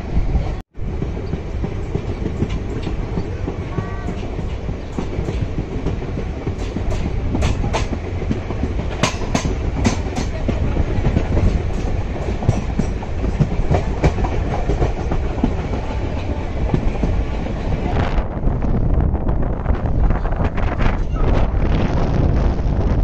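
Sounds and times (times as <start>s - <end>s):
train rumble: 0.0s - 23.0s
wheels clicking over rail joints: 0.9s - 17.9s.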